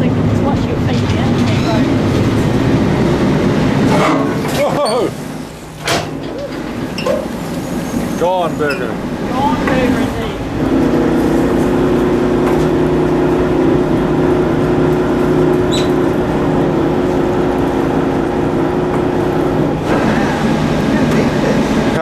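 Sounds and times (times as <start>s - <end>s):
boat motor humming: 0.0s - 22.0s
water noise: 0.0s - 22.0s
brief high squeak: 15.7s - 16.0s.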